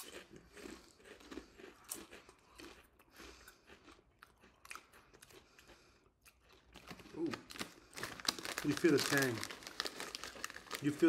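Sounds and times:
chewing potato chips: 0.0 - 11.0
crisp crunches: 6.4 - 11.0.

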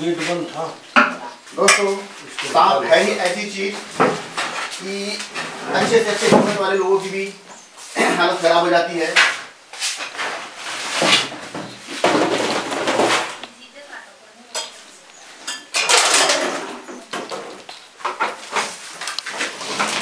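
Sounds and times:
metal objects clattering: 10.0 - 13.4, 15.4 - 20.0.

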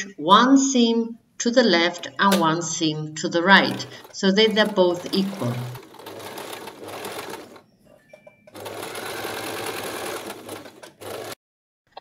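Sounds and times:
sewing machine running: 3.4 - 11.4.

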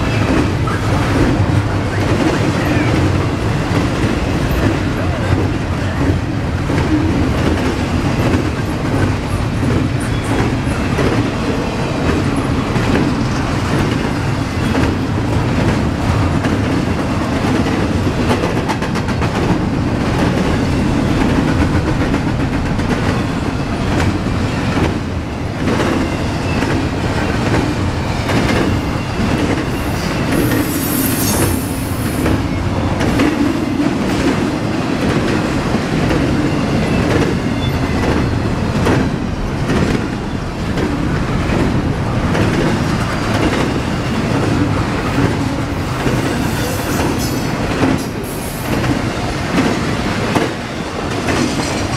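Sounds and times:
freight train wheels rumbling: 0.0 - 51.9
high squeal: 29.8 - 31.9.

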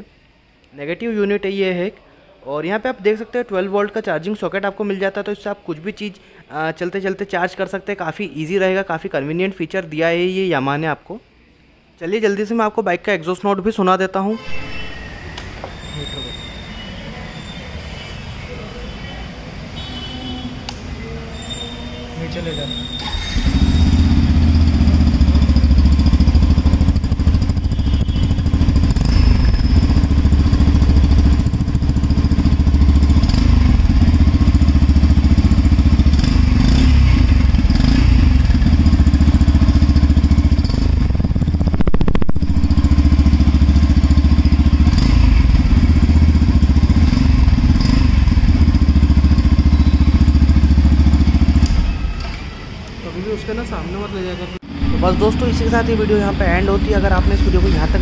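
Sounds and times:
motorcycle engine idling: 23.4 - 52.0.

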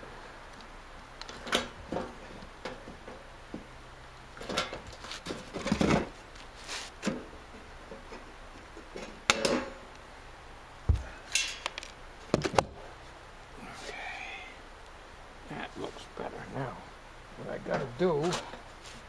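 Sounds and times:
dull thump: 10.9 - 11.2.

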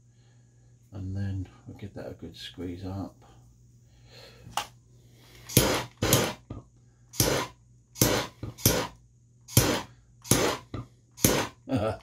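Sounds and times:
gas blowtorch bursts: 5.5 - 6.4, 7.1 - 11.6.

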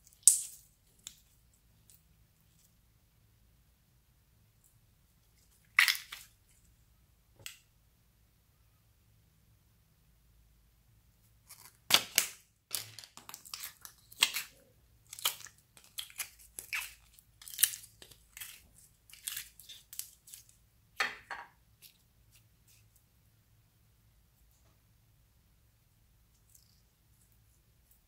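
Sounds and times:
slime crackling and squelching: 11.4 - 20.6.

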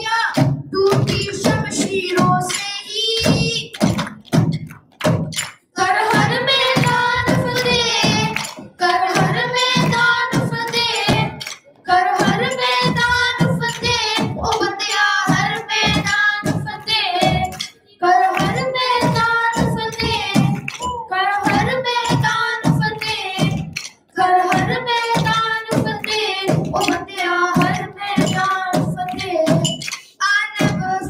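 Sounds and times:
percussion beats: 0.0 - 31.0
person singing: 24.2 - 31.0.

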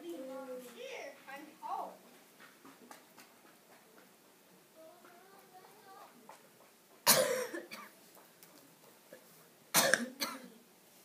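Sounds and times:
person coughing: 7.1 - 7.9, 9.8 - 10.6.

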